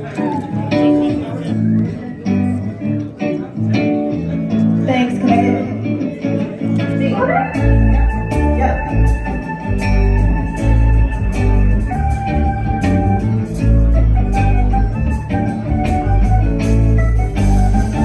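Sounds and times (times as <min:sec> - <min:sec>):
heavy bass line: 0:07.1 - 0:18.0.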